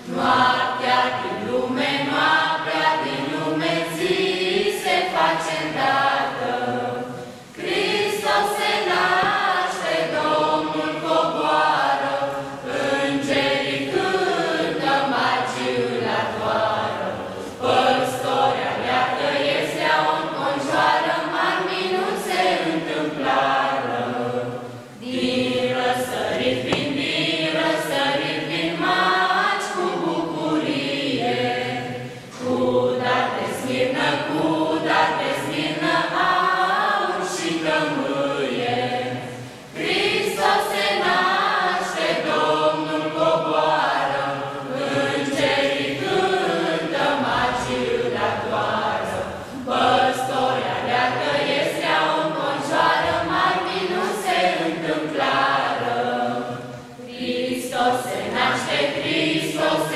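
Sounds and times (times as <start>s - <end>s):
choir singing a carol: 0.0s - 59.9s
singers breathing: 7.2s - 7.6s, 32.0s - 32.4s, 39.3s - 39.8s.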